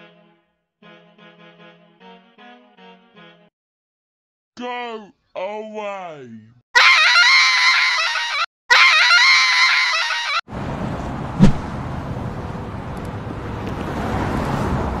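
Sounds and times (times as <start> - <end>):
high-pitched altered horn tone: 6.8 - 10.4.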